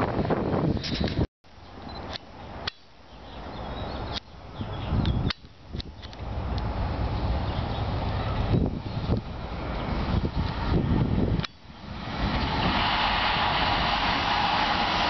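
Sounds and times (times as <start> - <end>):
wind gusting on microphone: 0.0 - 1.3, 3.8 - 15.0
freight train rumble: 5.9 - 15.0.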